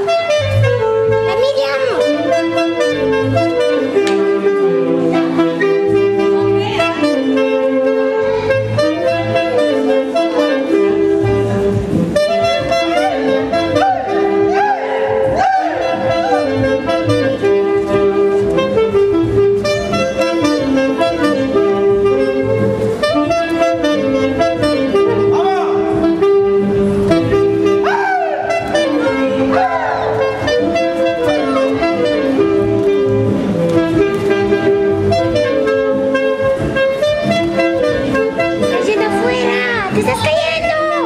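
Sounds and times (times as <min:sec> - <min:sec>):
wind band saxophones playing: 0:00.0 - 0:41.0.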